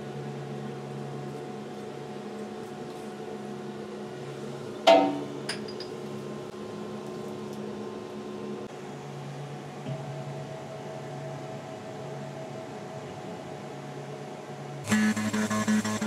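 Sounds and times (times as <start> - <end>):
mill machine humming: 14.8 - 16.0.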